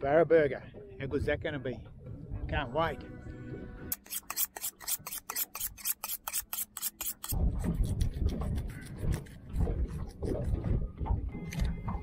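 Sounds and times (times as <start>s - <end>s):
knife scraping on sharpening steel: 3.9s - 7.4s.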